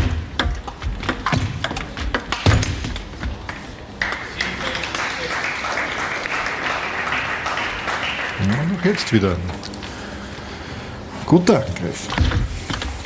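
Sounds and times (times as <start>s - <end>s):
audience applause: 4.0s - 9.3s.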